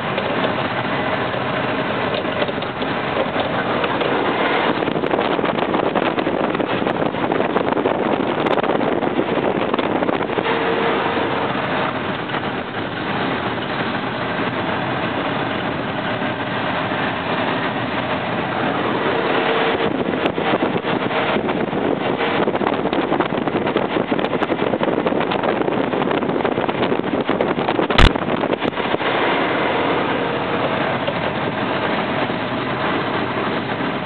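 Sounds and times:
truck engine and road noise: 0.0s - 34.0s.

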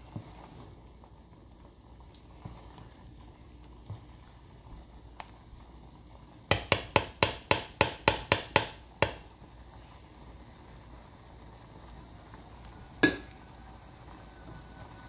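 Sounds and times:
ladle tapping metal pot: 6.5s - 9.3s, 13.0s - 13.4s.

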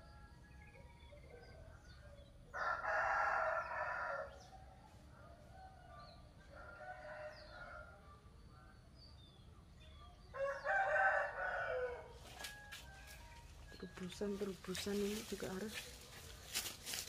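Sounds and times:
small birds chirping: 0.0s - 17.0s
roosters crowing: 2.5s - 4.6s, 5.7s - 8.0s, 10.3s - 13.8s.

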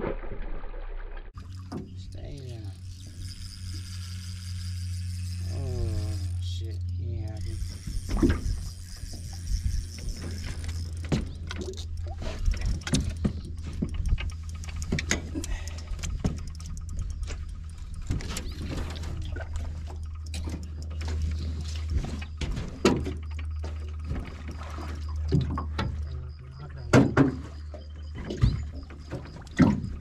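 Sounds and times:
water splashing: 0.0s - 27.6s
steady low hum: 1.3s - 30.0s
knocks and clatter on boat deck: 9.9s - 15.3s, 15.9s - 17.4s, 18.0s - 26.2s, 26.8s - 30.0s.

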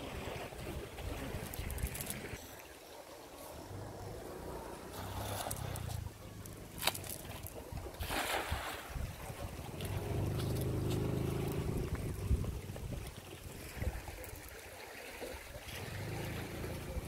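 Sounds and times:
wind: 0.0s - 17.0s
net splashing onto water: 6.7s - 12.0s.

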